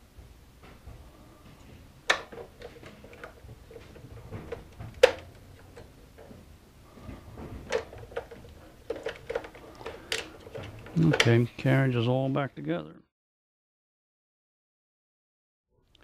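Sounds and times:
light handling sounds: 0.7 - 12.4.

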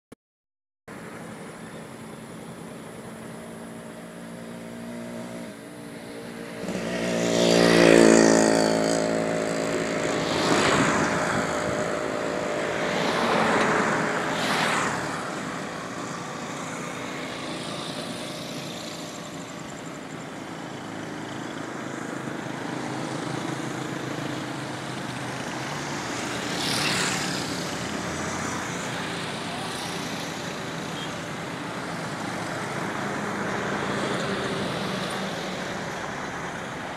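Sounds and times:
vehicles swishing past: 1.7 - 36.9
vehicle engine passing: 4.6 - 21.6, 22.2 - 31.0.

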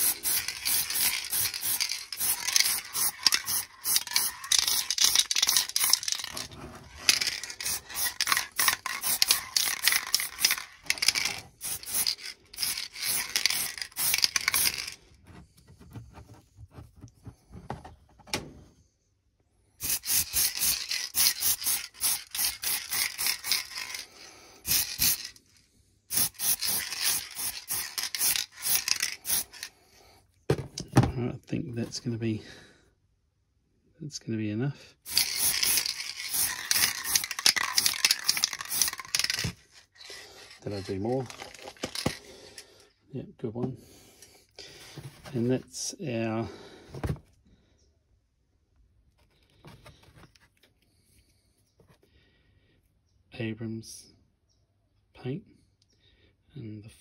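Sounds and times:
spray paint can hissing: 0.0 - 15.0, 19.8 - 25.4, 26.1 - 29.7, 35.1 - 42.2.

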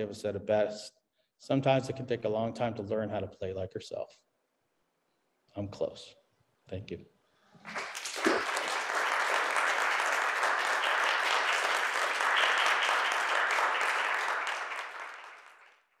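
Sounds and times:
audience applauding: 7.6 - 16.0.

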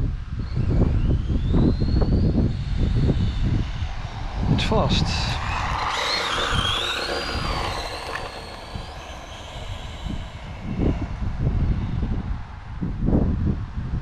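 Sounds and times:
electric motor whining: 0.6 - 11.6.

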